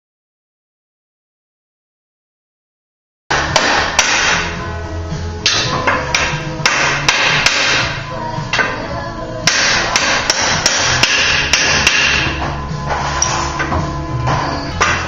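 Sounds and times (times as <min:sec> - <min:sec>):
hammer tapping metal: 0:03.3 - 0:04.6, 0:05.4 - 0:08.7, 0:09.4 - 0:12.6
background music: 0:03.3 - 0:15.0.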